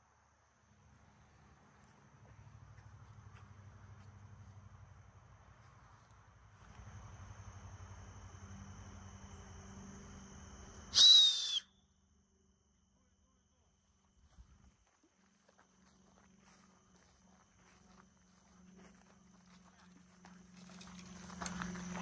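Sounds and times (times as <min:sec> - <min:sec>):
high insect drone: 0:00.0 - 0:22.0
falling whistle: 0:10.9 - 0:11.9.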